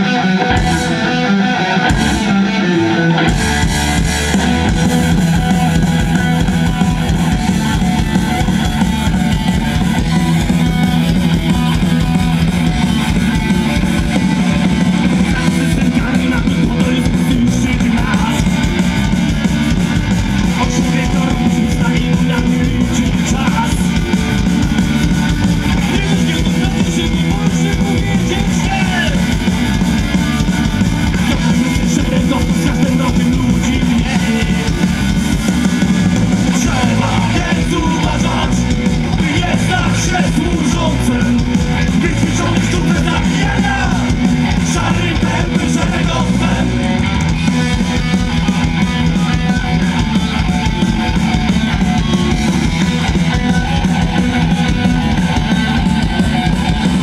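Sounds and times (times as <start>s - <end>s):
punk rock band playing: 0.0s - 57.0s.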